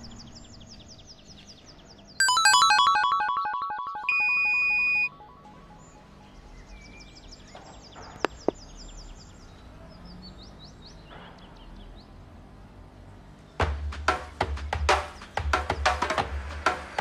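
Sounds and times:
short high chirps: 2.2 - 6.3
sharp clicks: 8.2 - 8.6.

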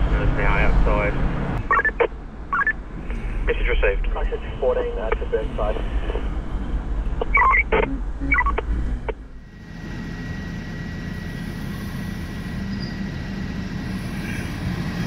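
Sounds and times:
low cab rumble: 0.0 - 9.4.

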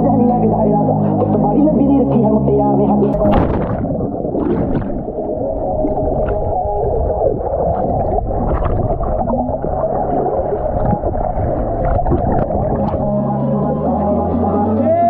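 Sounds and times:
sharp splashes: 3.1 - 13.2
muffled rushing water: 3.1 - 15.0.

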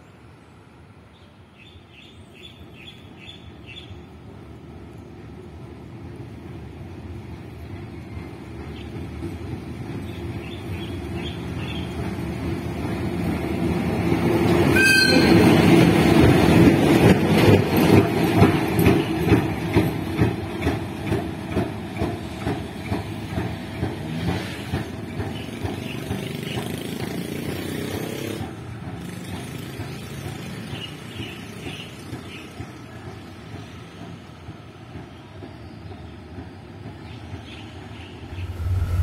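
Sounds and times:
train wheels clacking over rail joints: 14.5 - 38.1.

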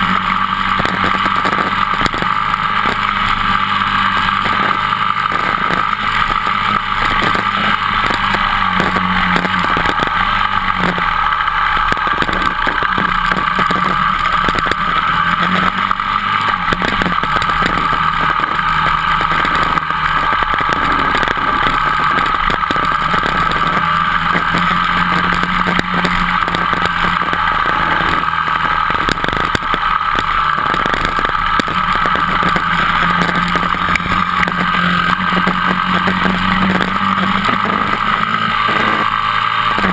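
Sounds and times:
dirt bike engine running hard: 0.0 - 39.9.

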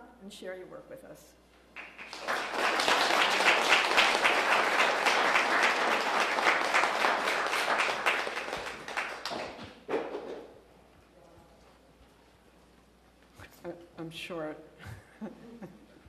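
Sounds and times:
audience applauding: 1.8 - 9.9.

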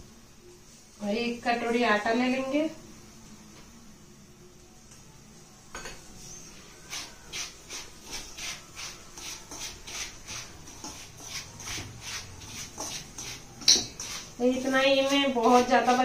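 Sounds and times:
flour scraping in bowl: 6.8 - 16.0.

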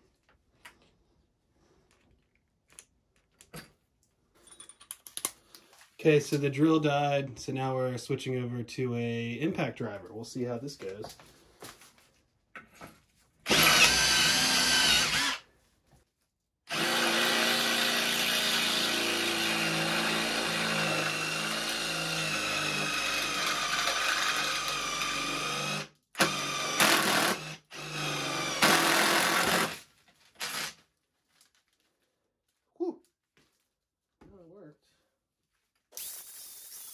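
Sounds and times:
impact driver drilling into steel: 13.5 - 15.4, 16.7 - 30.8.

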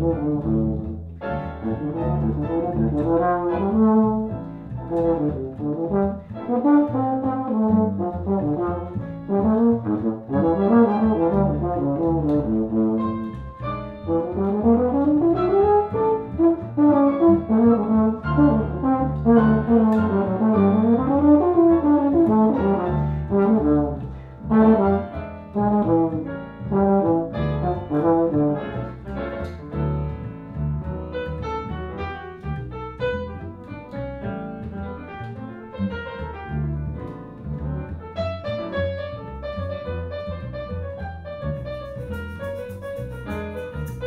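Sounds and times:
euphonium jazz solo: 0.0 - 44.0
piano comping: 0.0 - 44.0
plucked double bass: 0.0 - 44.0.

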